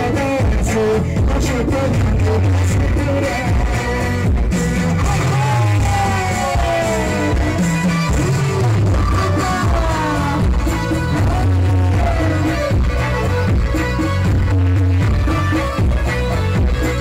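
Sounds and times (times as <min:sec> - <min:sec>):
man singing: 0:00.0 - 0:13.6
bass-heavy beat: 0:00.0 - 0:17.0
folk dance music through speakers: 0:00.0 - 0:17.0.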